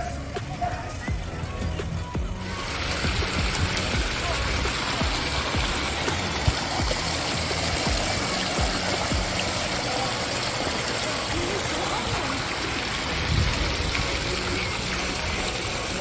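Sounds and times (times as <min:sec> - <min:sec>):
stream rushing over weir: 0:02.2 - 0:16.0.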